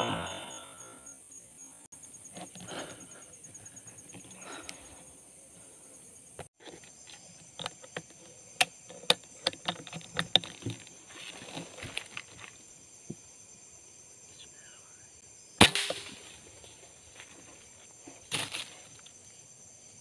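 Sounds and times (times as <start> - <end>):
high insect drone: 0.0 - 20.0
clicks and rustles handling rifle: 6.4 - 12.6
air rifle shot: 15.6 - 16.2.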